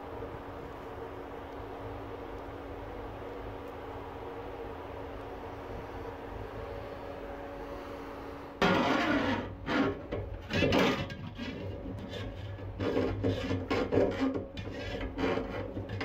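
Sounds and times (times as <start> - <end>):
steady low hum: 0.0 - 16.0
scraping strokes: 8.6 - 16.0.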